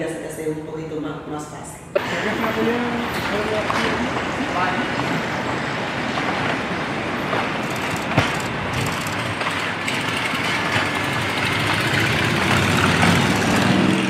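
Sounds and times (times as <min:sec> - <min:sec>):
car traffic noise: 0:02.0 - 0:14.0
sharp click: 0:07.6 - 0:09.3.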